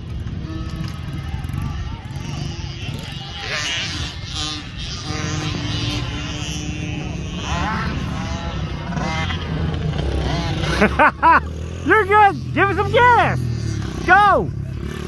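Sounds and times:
distant dirt bike engine idling: 0.0s - 15.0s
person shouting: 11.2s - 13.4s, 14.0s - 14.6s.

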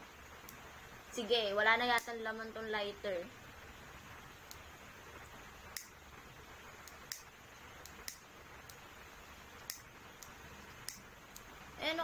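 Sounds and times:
lighter clicking: 4.4s - 4.6s, 5.7s - 6.0s, 6.8s - 8.8s, 9.6s - 11.5s.

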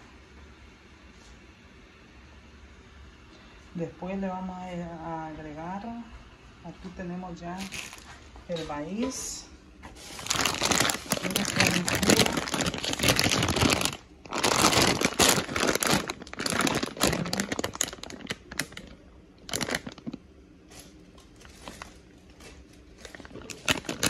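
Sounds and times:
plastic bag of corn crinkling: 7.6s - 8.2s, 10.0s - 24.0s.

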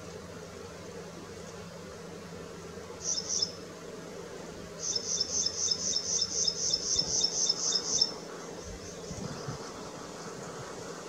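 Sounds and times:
high-pitched insect chirping: 3.0s - 3.6s, 4.8s - 8.2s.

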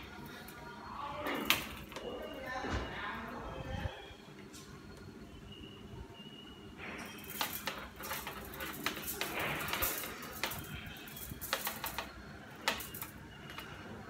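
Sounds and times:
scraping rustle: 7.2s - 13.8s
wire clicking and ticking: 7.2s - 13.9s.

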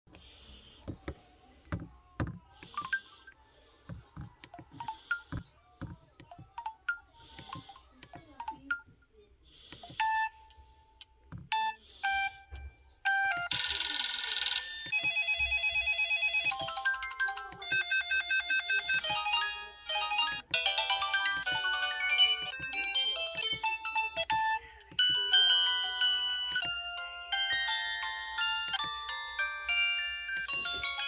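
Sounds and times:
electronic ringtone melodies: 4.4s - 5.4s, 9.9s - 10.7s, 11.5s - 31.0s
phone beeps: 9.9s - 10.6s, 11.5s - 28.9s.

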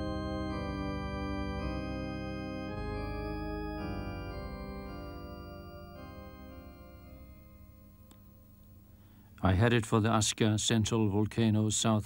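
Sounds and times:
sustained organ chords: 0.0s - 9.3s.

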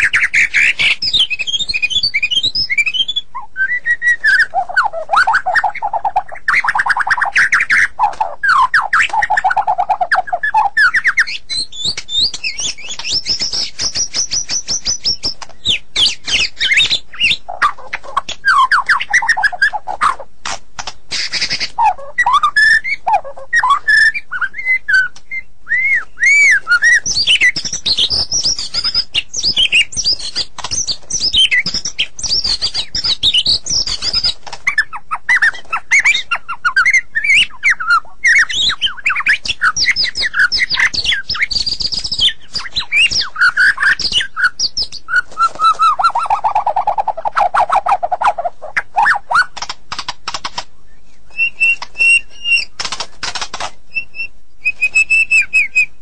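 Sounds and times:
songbird singing: 0.0s - 56.0s.

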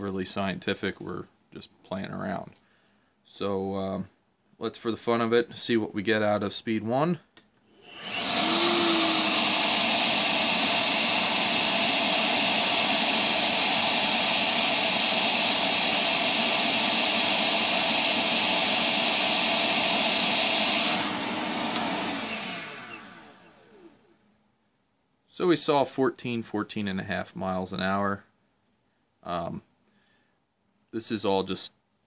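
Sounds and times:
wet-dry vacuum motor running: 7.8s - 24.1s
air rushing through hose: 8.0s - 17.2s.

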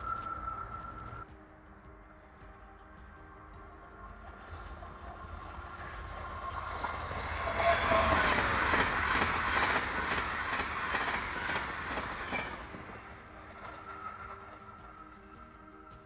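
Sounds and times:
train passing at speed: 0.0s - 1.3s, 1.9s - 16.0s
train wheel clacks: 4.5s - 15.4s.

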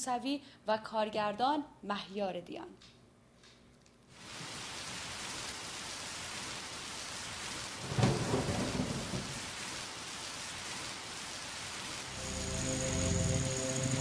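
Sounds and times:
heavy rain: 4.1s - 14.0s
thunderclap: 7.8s - 9.7s.

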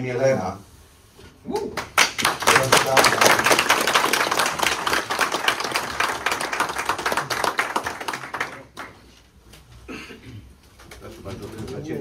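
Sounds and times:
people clapping: 1.6s - 9.3s.

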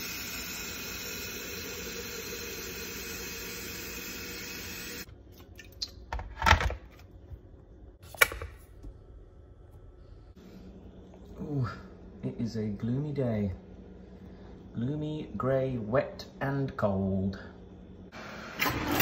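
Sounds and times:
kettle boiling: 0.0s - 5.1s.

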